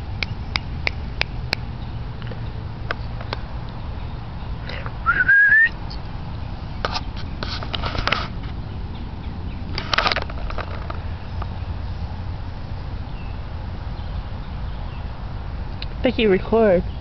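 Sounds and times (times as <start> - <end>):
person whistling: 5.0 - 5.7.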